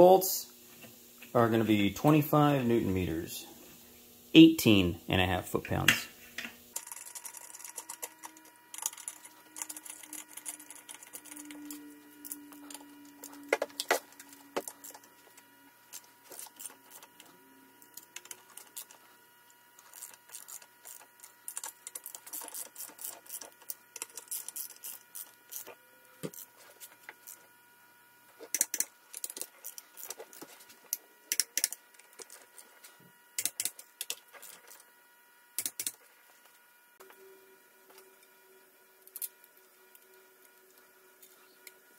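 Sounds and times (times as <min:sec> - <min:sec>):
socket ratchet clicking: 0:28.5 - 0:30.2, 0:33.4 - 0:34.2, 0:35.6 - 0:36.0.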